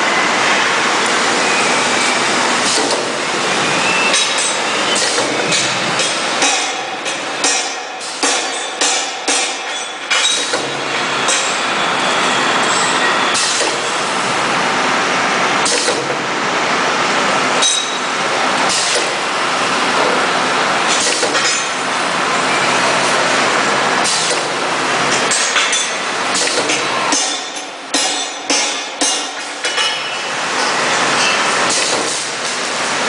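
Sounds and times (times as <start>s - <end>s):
machine hissing: 1.0s - 14.5s
pneumatic machine clacking: 2.0s - 11.8s, 12.7s - 14.1s, 15.6s - 16.2s, 17.6s - 21.9s, 24.0s - 33.0s.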